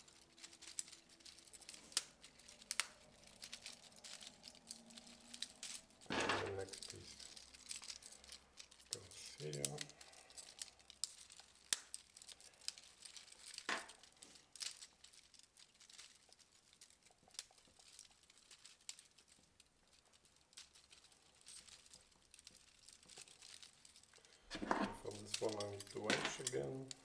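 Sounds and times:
plastic scraping on plastic: 24.5s - 27.0s.

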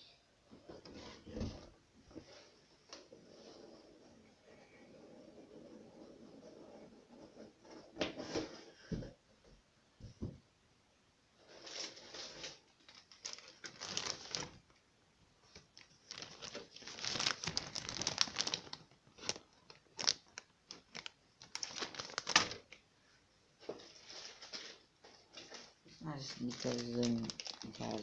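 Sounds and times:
plastic bags crinkling: 11.5s - 14.8s, 15.5s - 22.8s, 23.8s - 28.0s.

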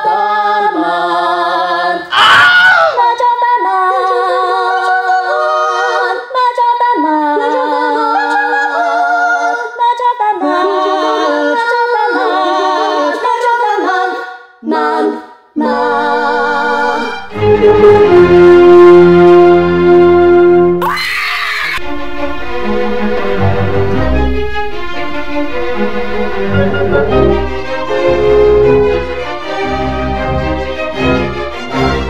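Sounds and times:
voices singing a cappella: 0.0s - 19.8s, 21.8s - 32.0s
music: 15.7s - 20.9s, 21.8s - 32.0s.

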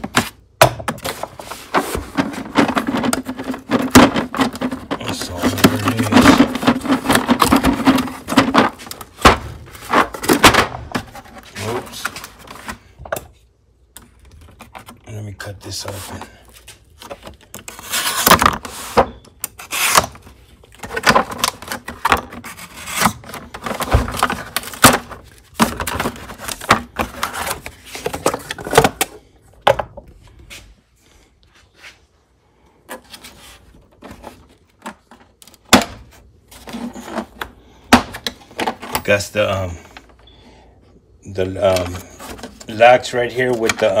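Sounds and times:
cardboard rubbing and scraping: 1.0s - 12.7s, 17.7s - 19.0s.

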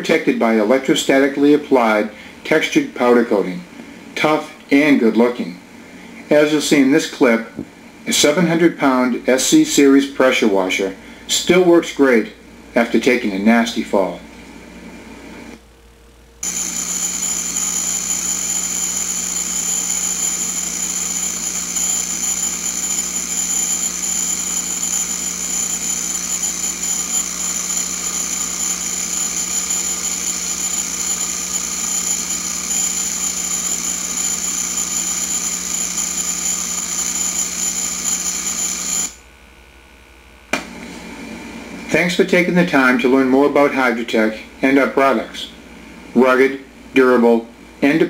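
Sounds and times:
pressure washer running: 16.4s - 39.2s.

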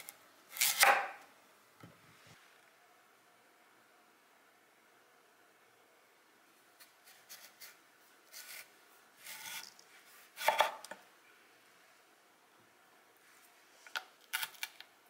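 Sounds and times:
knife scraping and knocking: 7.1s - 9.8s, 10.4s - 11.0s
knife crunching through radish: 7.2s - 9.7s, 14.2s - 14.8s.

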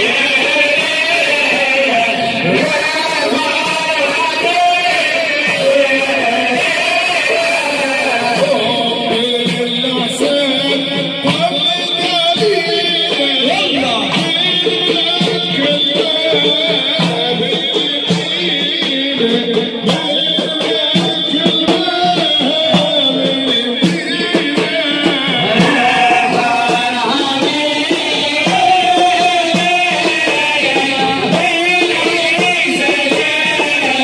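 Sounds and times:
hand drums beating: 0.0s - 34.0s
men chanting in unison: 0.0s - 34.0s.

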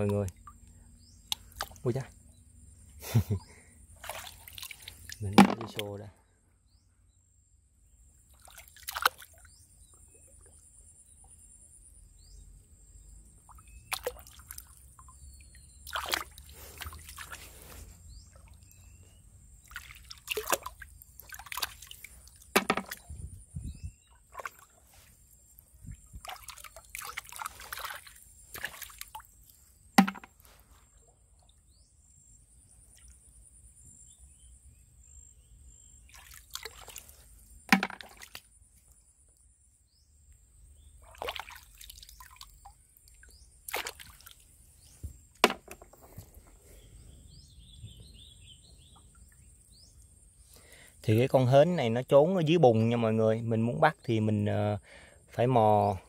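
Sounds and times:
water dripping: 0.0s - 2.1s, 4.0s - 5.9s, 13.4s - 17.4s, 19.6s - 23.1s, 25.6s - 30.6s, 41.0s - 44.5s
hand splashing in muddy water: 4.0s - 6.0s, 8.3s - 9.6s, 13.5s - 14.8s, 15.7s - 18.8s, 19.6s - 23.3s, 24.2s - 25.2s, 25.9s - 30.6s, 36.0s - 38.5s, 41.0s - 44.6s.

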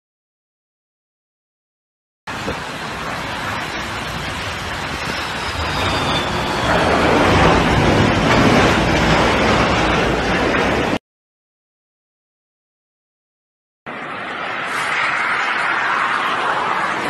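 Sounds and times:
jet airliner engine noise: 2.3s - 11.0s, 13.9s - 17.0s
jet reverse thrust roar: 2.3s - 11.0s, 13.9s - 17.0s.

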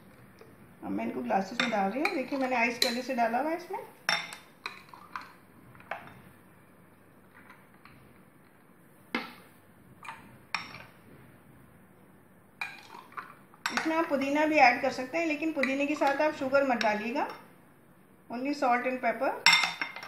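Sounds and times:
glassware clinking: 4.1s - 5.3s, 19.5s - 20.0s.

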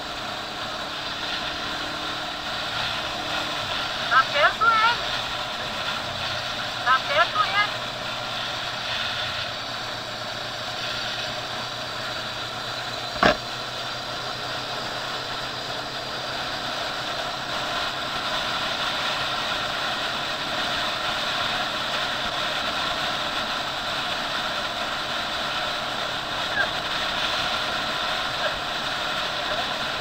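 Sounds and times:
motorcycle engine running: 0.0s - 30.0s
sharp knock: 13.2s - 13.4s.

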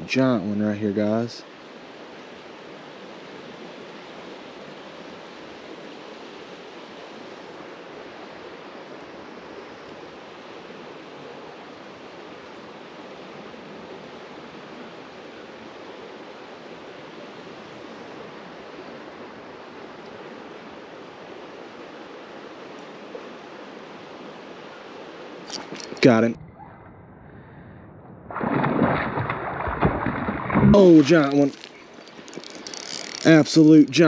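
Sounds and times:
creek water rushing: 0.0s - 26.4s, 29.2s - 34.0s.

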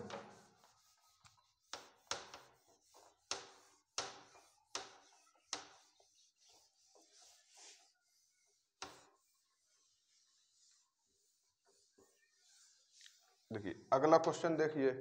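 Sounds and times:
duster rubbing whiteboard: 0.0s - 14.6s.

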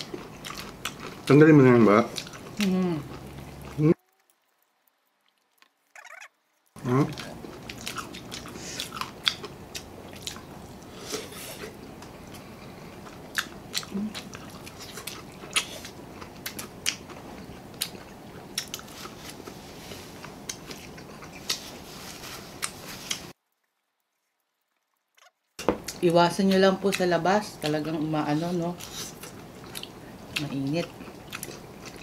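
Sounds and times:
person chewing food: 0.0s - 32.0s
mouth and teeth clicks: 2.1s - 10.4s, 22.6s - 26.0s.

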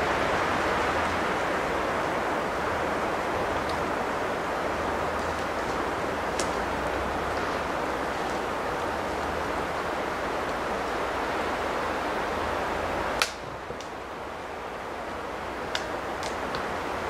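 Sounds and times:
sharp snap: 13.2s - 13.9s.

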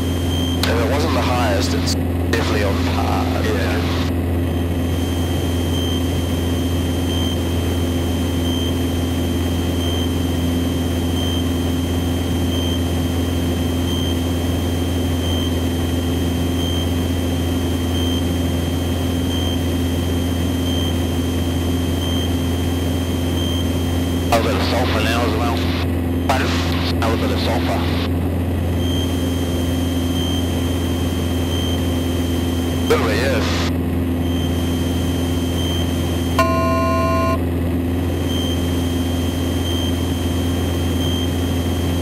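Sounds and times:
faint high whine: 0.0s - 4.2s, 20.4s - 28.1s, 28.8s - 37.4s
propeller plane engine droning: 0.0s - 42.0s.

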